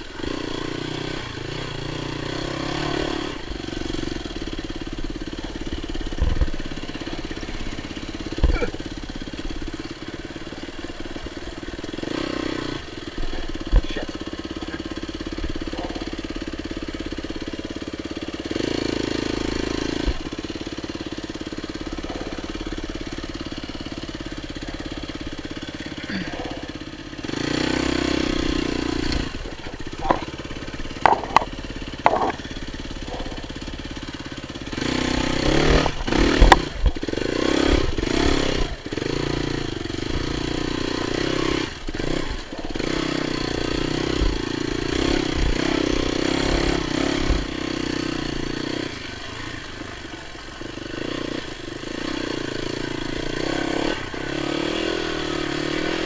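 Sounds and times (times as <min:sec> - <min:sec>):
dirt bike engine revving: 0:00.0 - 0:56.0
bike knocks and clatter: 0:05.4 - 0:10.6, 0:13.5 - 0:14.0, 0:15.4 - 0:16.1, 0:29.1 - 0:33.5, 0:35.5 - 0:37.2.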